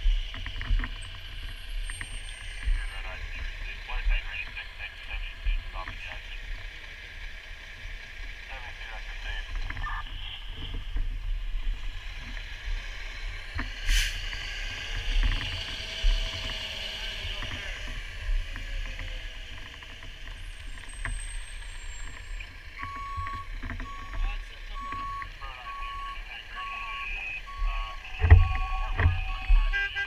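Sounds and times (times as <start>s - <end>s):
fire truck engine rumble: 0.0s - 30.0s
short hiss: 13.9s - 14.2s
truck reversing beeper: 20.4s - 30.0s.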